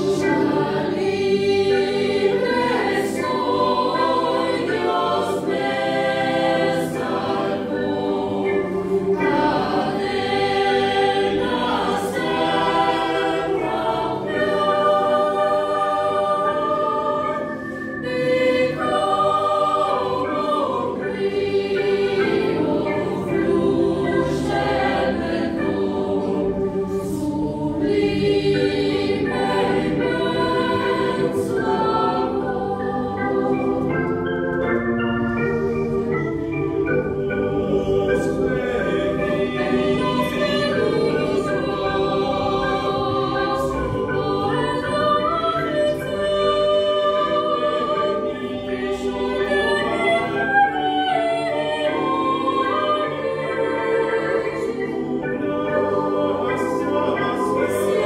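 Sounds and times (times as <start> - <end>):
digital piano: 0.0 - 58.0
mixed choir singing: 0.0 - 58.0.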